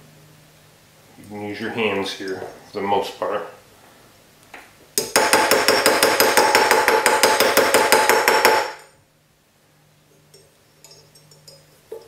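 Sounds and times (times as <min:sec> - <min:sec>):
metallic ring: 0:10.2 - 0:12.0.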